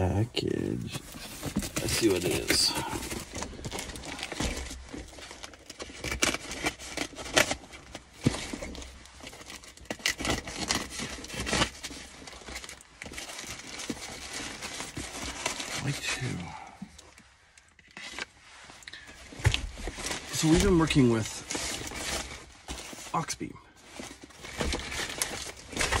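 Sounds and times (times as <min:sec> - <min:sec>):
plastic mailer bag crinkling: 0:00.9 - 0:16.5, 0:17.9 - 0:26.0.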